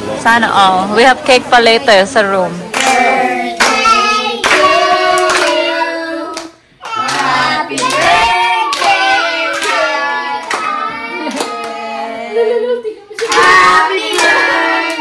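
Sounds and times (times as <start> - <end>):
group singing together: 1.3 - 15.0
people clapping in time: 2.8 - 3.0, 3.6 - 5.7, 6.3 - 11.8.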